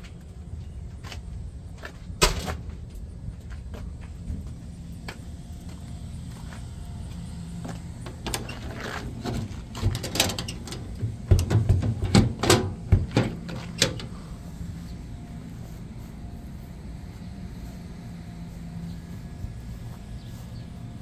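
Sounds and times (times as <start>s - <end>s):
low engine hum: 0.0s - 21.0s
sharp knocks and clatter: 9.2s - 14.0s.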